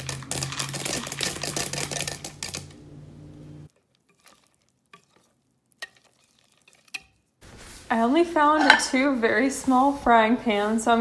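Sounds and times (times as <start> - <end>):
spoon stirring thick batter: 0.0 - 2.6, 3.7 - 7.9
chocolate chips rattling into bowl: 0.0 - 2.7.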